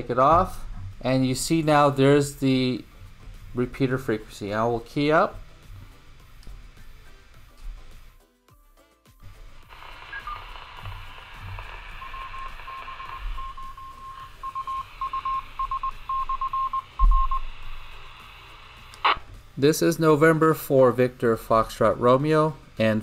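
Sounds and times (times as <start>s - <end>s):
radio speaker hiss: 9.2s - 16.1s, 16.8s - 19.7s
morse code beeps: 9.8s - 17.5s.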